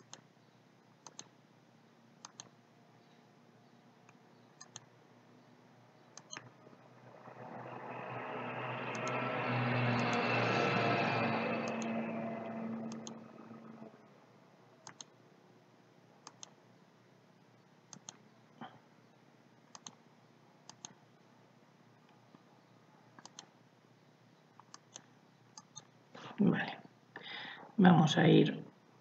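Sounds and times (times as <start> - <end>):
faint room hiss: 12.2 - 29.0.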